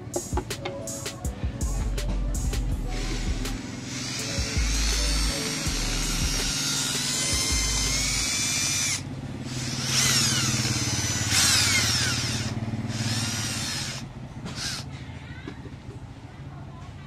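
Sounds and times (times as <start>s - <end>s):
electric motor whine: 2.8s - 14.8s.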